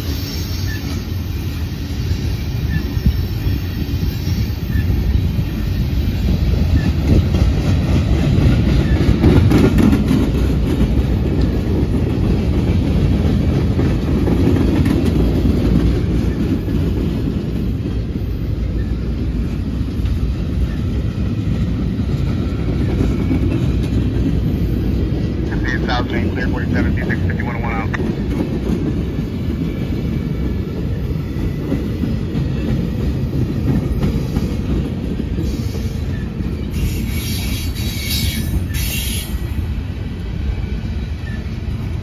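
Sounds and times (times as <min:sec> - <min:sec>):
steel wheels rumbling on rails: 0:00.0 - 0:42.0
wheels clacking over rail joints: 0:06.5 - 0:25.6.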